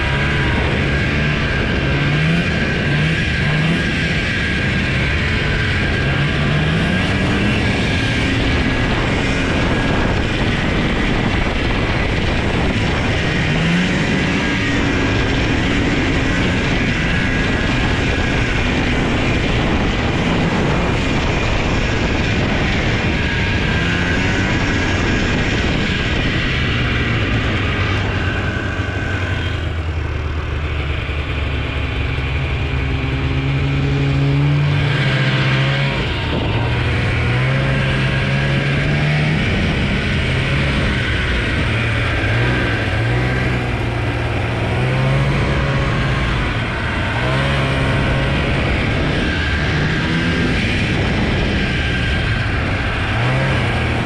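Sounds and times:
snowmobile engine revving: 0.0 - 54.0.

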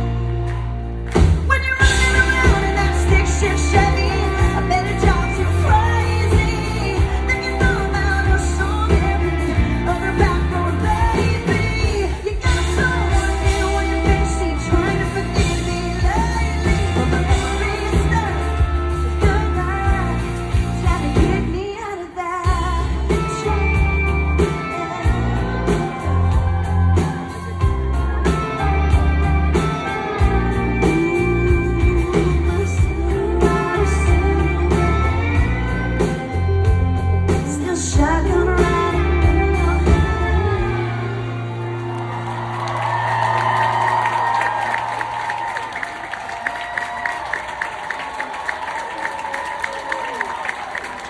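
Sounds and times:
live country band playing: 0.0 - 51.0
woman singing lead: 1.2 - 45.8.

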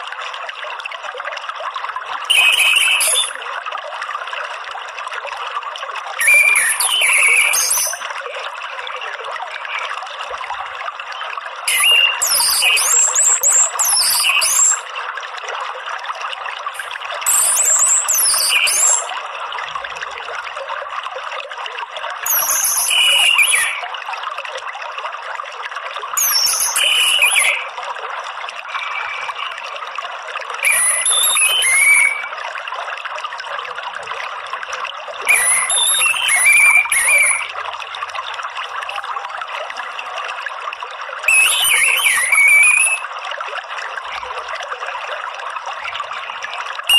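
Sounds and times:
water trickling: 0.0 - 46.9
bird twittering calls: 2.3 - 3.4, 6.2 - 8.0, 11.7 - 14.8, 16.8 - 19.1, 22.3 - 23.8, 26.2 - 27.7, 28.7 - 29.5, 30.6 - 32.3, 35.3 - 37.5, 41.3 - 43.0.

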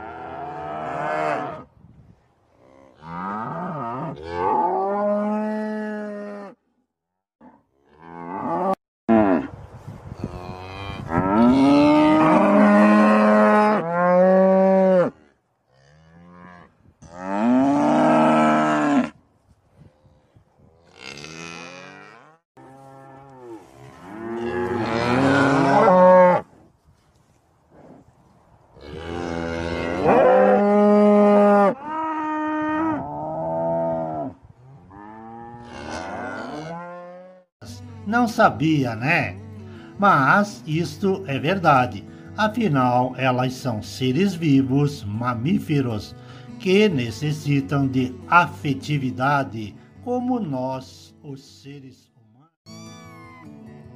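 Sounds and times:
cattle mooing: 0.0 - 1.6, 10.6 - 19.2, 20.9 - 26.4, 28.9 - 37.4.

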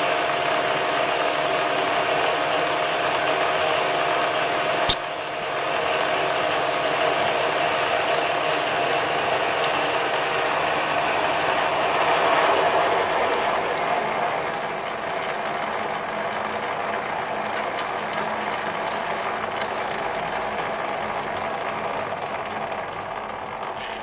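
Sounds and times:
drill cutting through steel: 0.0 - 22.8
sharp click: 4.9 - 5.1.

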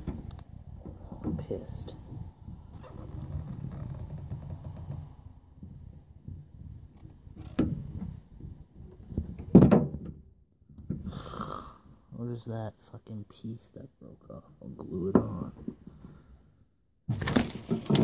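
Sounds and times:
rustling handling noise: 17.1 - 18.0.

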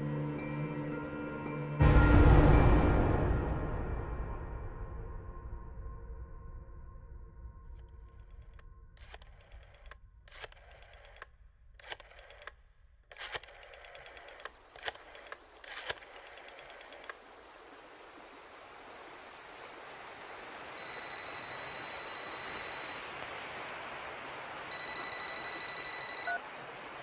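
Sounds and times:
sharp clicks: 7.8 - 17.2
stream rushing: 13.4 - 27.0
mobile phone ringing: 20.8 - 23.0, 24.7 - 26.4.

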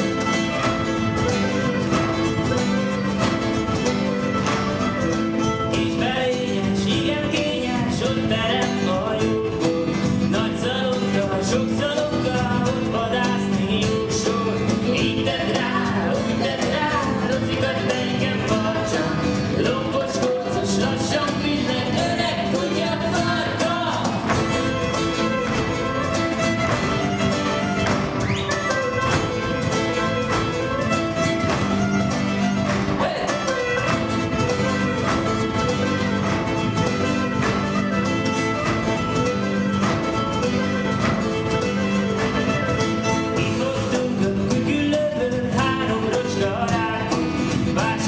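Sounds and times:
acoustic guitar: 0.0 - 48.0
man singing: 5.4 - 26.0, 33.0 - 33.9, 43.0 - 48.0
clarinet: 24.5 - 43.4.

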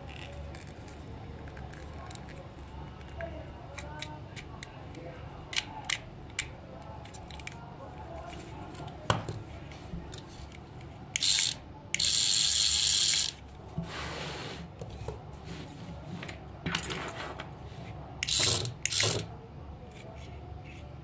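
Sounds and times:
toy motor whirring: 11.2 - 13.4, 18.2 - 19.3.

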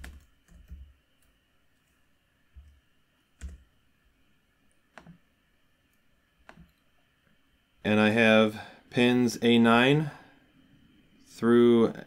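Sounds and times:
mouse and keyboard clicks: 4.9 - 5.2, 6.4 - 6.8.

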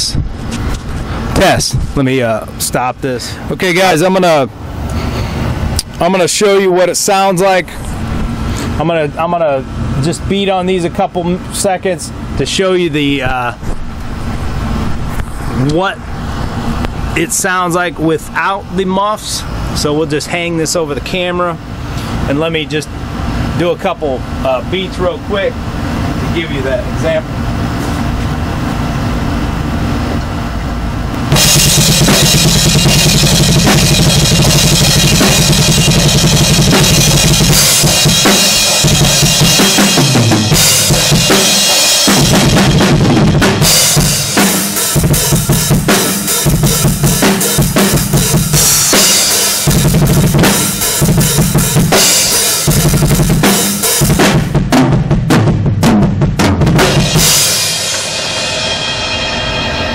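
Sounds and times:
drum kit played fast: 1.3 - 1.8, 31.3 - 59.9.

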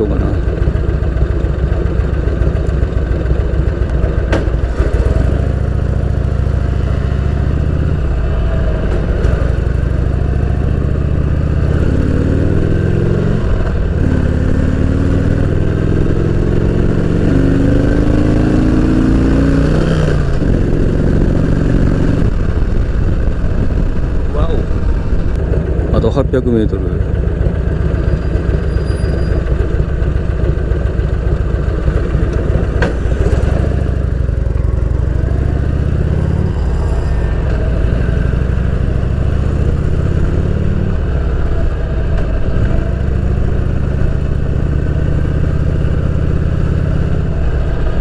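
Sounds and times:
motorcycle engine accelerating: 0.0 - 48.0.

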